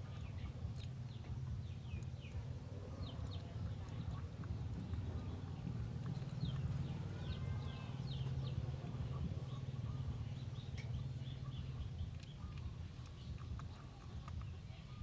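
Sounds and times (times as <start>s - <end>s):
small birds chirping: 0.0s - 15.0s
steady low rumble: 0.0s - 15.0s.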